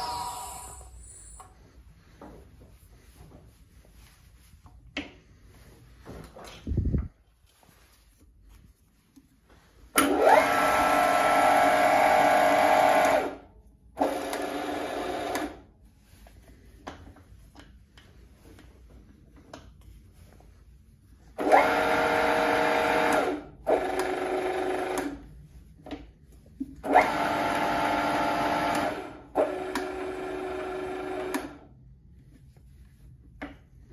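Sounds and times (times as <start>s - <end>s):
milling machine motor whining: 0.0s - 1.5s.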